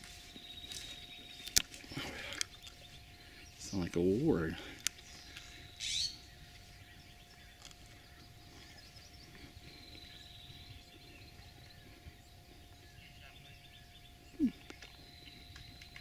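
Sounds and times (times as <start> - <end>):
bird chirping: 0.0 - 16.0.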